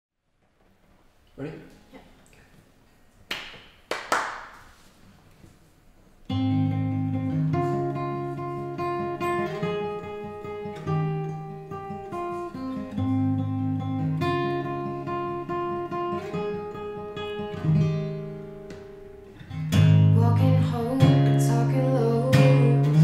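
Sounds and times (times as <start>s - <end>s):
acoustic guitar plucked notes: 6.2s - 23.0s.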